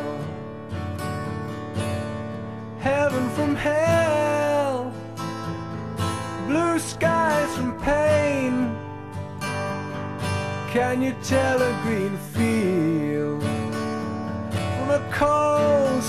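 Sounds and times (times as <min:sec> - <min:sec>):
acoustic guitar strumming: 0:00.0 - 0:16.0
person singing: 0:02.8 - 0:05.0, 0:06.4 - 0:08.8, 0:10.6 - 0:13.8, 0:14.7 - 0:16.0.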